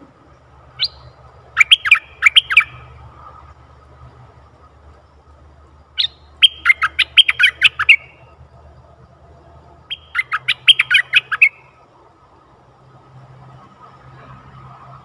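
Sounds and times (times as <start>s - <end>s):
bird singing fast phrases: 0.6s - 4.8s, 5.8s - 8.4s, 9.8s - 11.8s.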